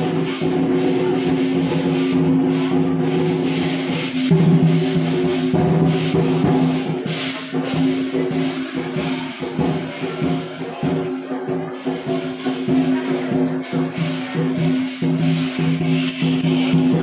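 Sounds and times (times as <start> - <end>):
cymbal crashes: 0.0 - 11.0
drum rhythm: 0.0 - 17.0.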